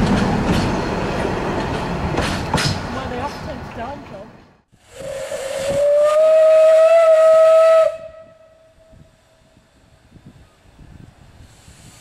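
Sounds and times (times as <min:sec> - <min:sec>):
steam escaping: 0:04.8 - 0:07.6, 0:11.4 - 0:12.0
steam whistle: 0:04.9 - 0:09.1.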